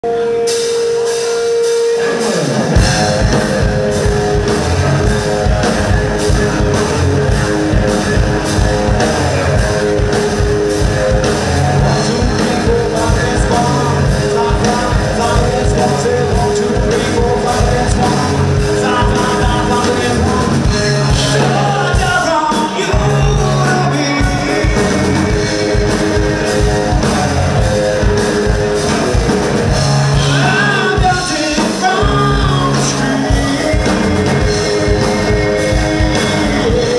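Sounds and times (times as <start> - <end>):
drum kit steady beat: 0.0 - 36.9
electric bass: 0.0 - 36.9
electric guitars: 0.0 - 36.9
lead vocalist singing: 6.0 - 28.2, 30.0 - 36.9.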